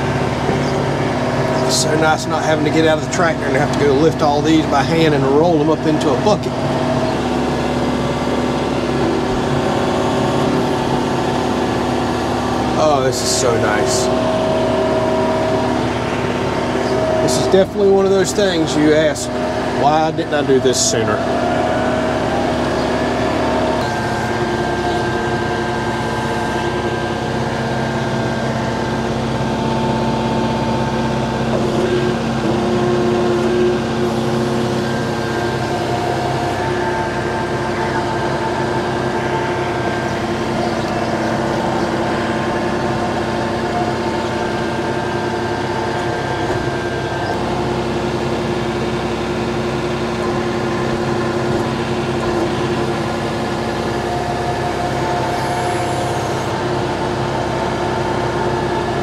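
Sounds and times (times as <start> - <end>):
high whine: 0.0 - 59.0
tractor diesel engine running: 0.0 - 59.0.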